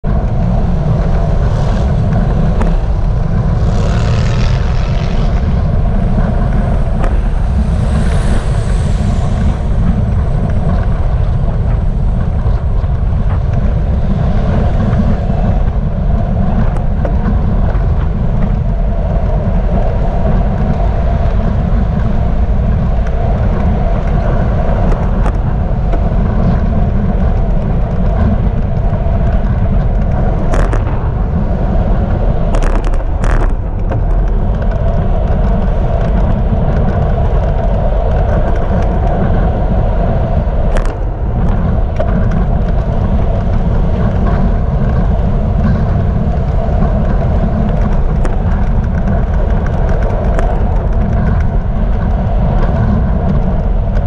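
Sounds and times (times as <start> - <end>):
road traffic passing: 0.0 - 15.4
wind buffeting microphone: 0.0 - 54.0.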